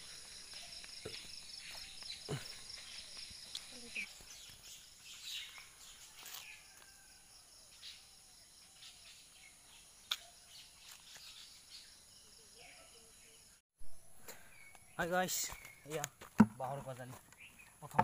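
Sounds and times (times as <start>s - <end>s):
bird chirps: 0.0s - 6.7s
insects droning: 0.0s - 18.0s.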